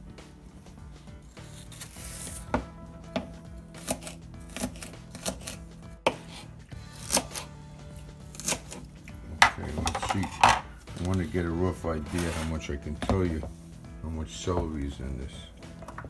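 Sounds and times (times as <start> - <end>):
knife chopping on plastic board: 1.8 - 7.5, 8.3 - 10.6, 12.1 - 13.5.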